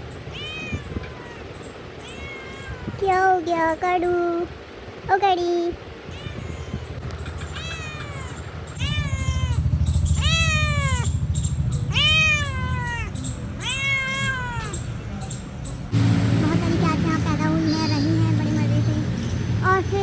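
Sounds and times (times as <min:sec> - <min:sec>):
cat meowing: 0:00.3 - 0:03.0, 0:06.1 - 0:11.2, 0:11.8 - 0:14.9
low steady rumble: 0:05.6 - 0:20.0.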